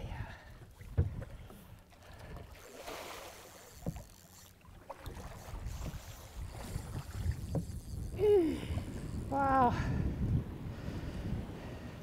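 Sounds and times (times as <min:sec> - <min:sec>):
water splashing around boat: 0:00.0 - 0:09.6
light knocks against boat: 0:00.9 - 0:01.4
wind buffeting microphone: 0:05.1 - 0:12.0.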